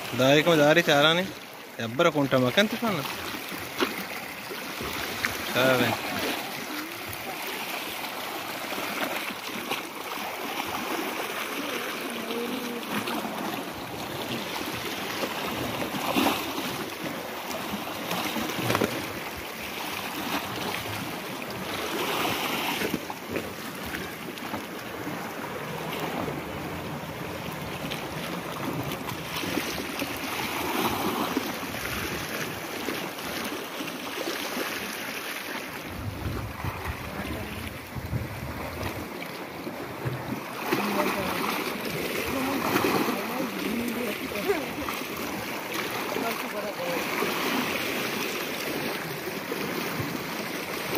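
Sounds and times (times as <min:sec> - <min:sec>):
sea waves washing against rocks: 0:00.0 - 0:50.9
surf surging: 0:00.0 - 0:50.9.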